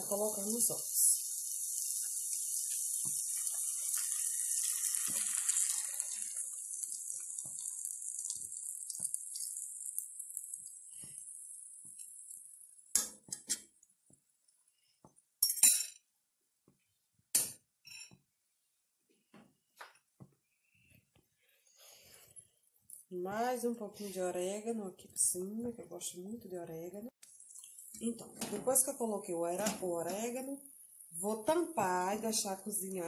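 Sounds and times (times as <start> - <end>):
eggs sizzling in frying pan: 0.0 - 15.4, 27.1 - 33.0
kitchenware clinking: 12.9 - 13.8, 15.4 - 16.0, 17.4 - 18.2.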